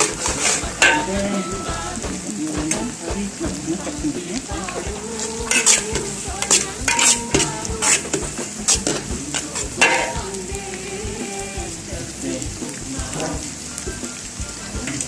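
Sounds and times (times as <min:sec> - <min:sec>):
metal spatula scraping wok: 0:00.0 - 0:01.6, 0:04.7 - 0:10.4
frying sizzle: 0:00.0 - 0:15.0.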